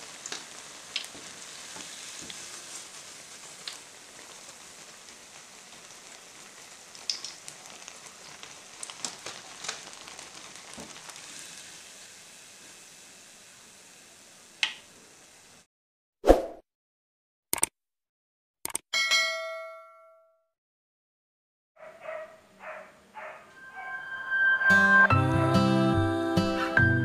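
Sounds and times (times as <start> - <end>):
oil sizzling: 0.0 - 15.7
small pops and clicks: 7.0 - 7.5, 14.6 - 14.8, 17.5 - 17.7.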